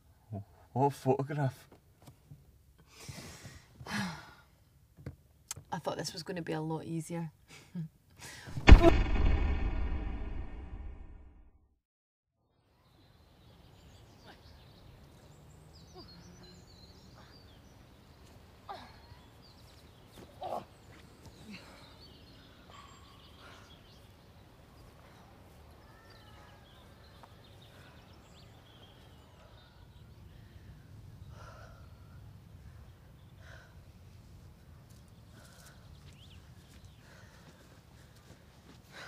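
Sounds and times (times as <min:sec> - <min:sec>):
brief louder knocks: 0:08.5 - 0:11.3.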